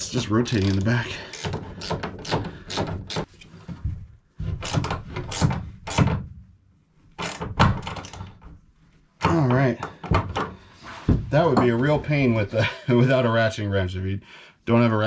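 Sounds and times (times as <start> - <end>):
ratcheting wrench clicking: 0.5 - 3.3.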